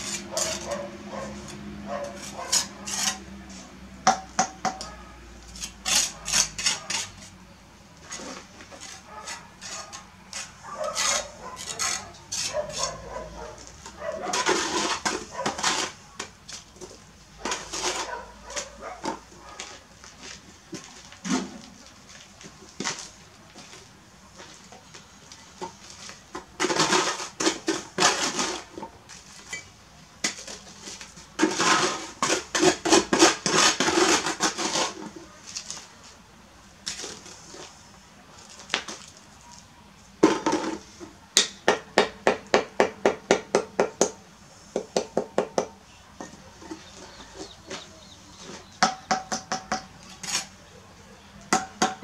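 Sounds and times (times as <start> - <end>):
trowel scraping on mortar and brick: 0.0 - 3.6, 4.7 - 7.4, 8.0 - 20.4, 25.7 - 35.8, 46.2 - 50.6.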